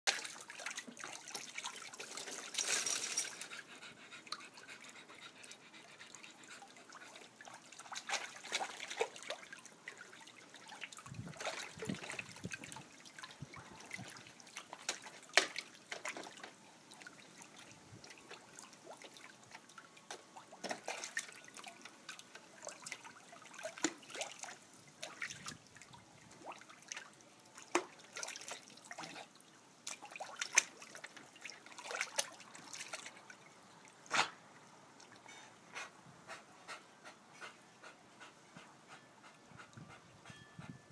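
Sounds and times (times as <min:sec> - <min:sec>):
garden hose trickling: 0:00.1 - 0:03.6
dog splashing in water: 0:07.0 - 0:16.6, 0:20.5 - 0:21.8.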